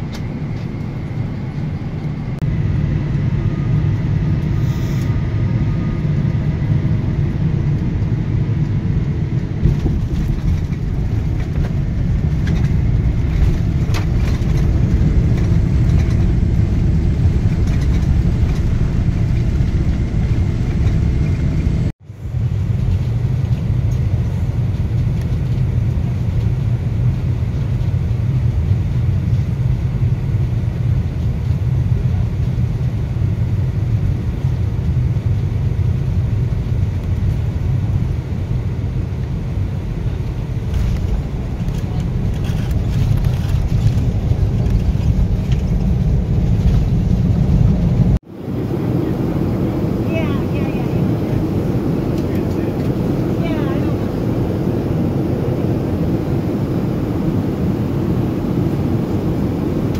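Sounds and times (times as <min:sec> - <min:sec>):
jet engines and airflow rumble: 0:00.0 - 0:59.9.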